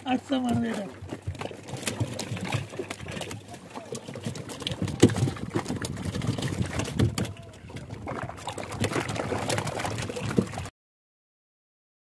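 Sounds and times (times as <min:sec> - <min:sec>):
fish flapping and slapping: 0:00.0 - 0:10.7.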